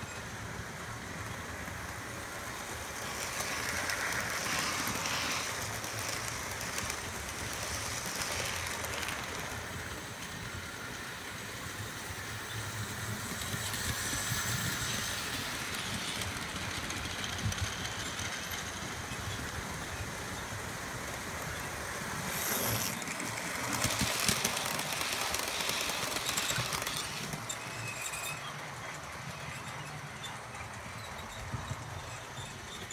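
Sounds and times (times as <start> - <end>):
wheels rumbling on rails: 0.0 - 32.9.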